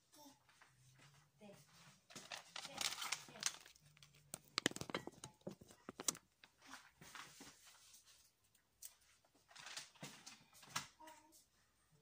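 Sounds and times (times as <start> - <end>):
hands handling kitchen items: 2.0 - 10.8.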